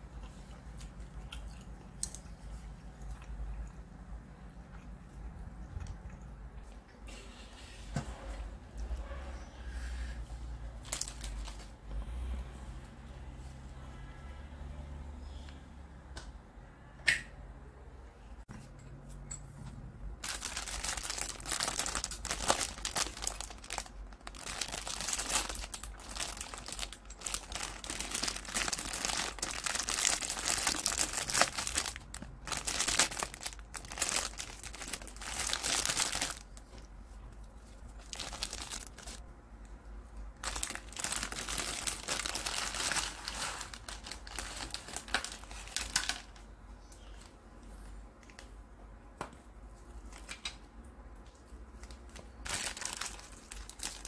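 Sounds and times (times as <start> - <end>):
plastic packet crinkling: 10.8 - 11.8, 20.2 - 36.9, 37.7 - 39.2, 40.4 - 46.4, 51.8 - 54.0.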